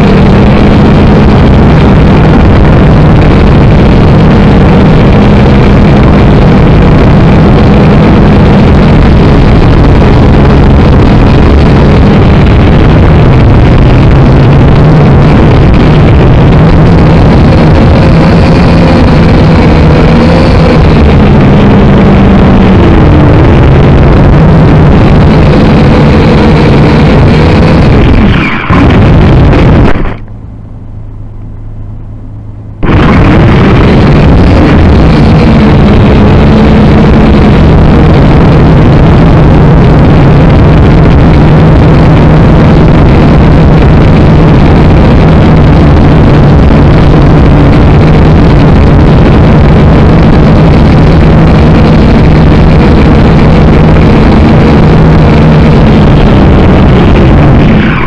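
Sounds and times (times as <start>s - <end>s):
drone motors whining: 0.0s - 58.0s.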